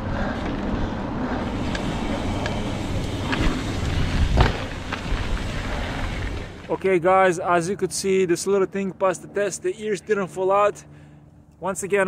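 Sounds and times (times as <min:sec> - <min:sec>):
wind noise on microphone: 0:00.0 - 0:06.6
bike tyres rumbling on dirt: 0:00.0 - 0:07.3.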